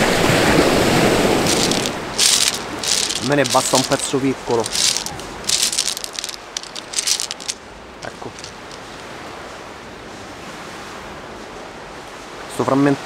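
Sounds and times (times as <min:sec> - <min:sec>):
pebbles clattering and crunching: 0:01.3 - 0:09.0.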